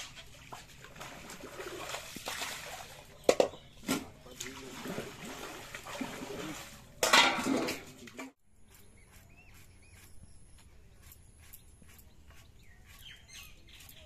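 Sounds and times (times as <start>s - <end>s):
birds chirping: 0.0s - 7.0s, 7.9s - 14.0s
water splashing and sloshing: 0.0s - 8.4s.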